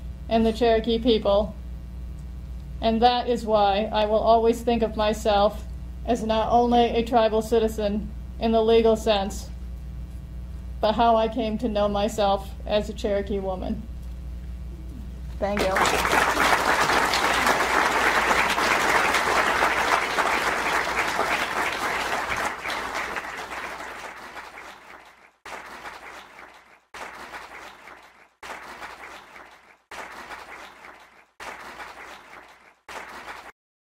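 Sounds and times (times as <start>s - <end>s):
audience applauding: 15.6s - 33.5s.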